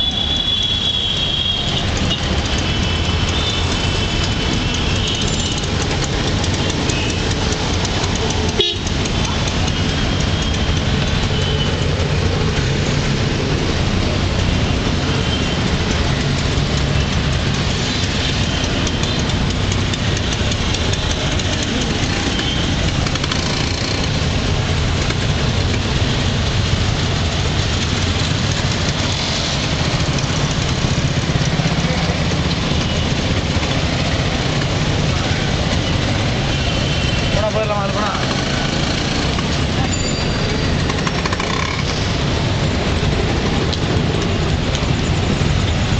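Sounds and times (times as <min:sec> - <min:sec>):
auto-rickshaw engine running: 0:00.0 - 0:45.9
street traffic: 0:00.0 - 0:45.9.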